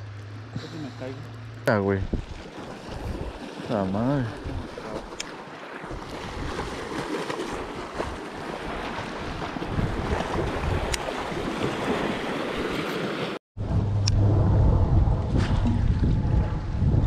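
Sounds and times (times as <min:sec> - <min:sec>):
water lapping and splashing: 0:00.0 - 0:13.4
wind buffeting microphone: 0:02.0 - 0:03.4, 0:09.2 - 0:11.5, 0:13.6 - 0:17.0.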